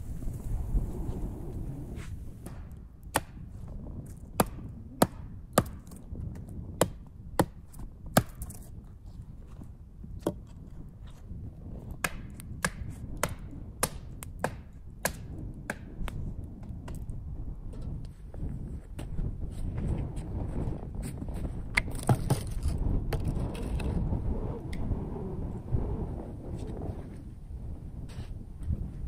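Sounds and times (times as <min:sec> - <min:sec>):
wood being chopped: 0:02.4 - 0:03.5, 0:04.1 - 0:08.6, 0:11.9 - 0:16.2.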